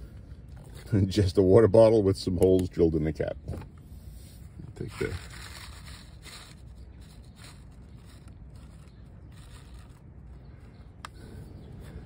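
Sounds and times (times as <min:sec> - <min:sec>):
seed packet rustling: 0:04.8 - 0:10.2.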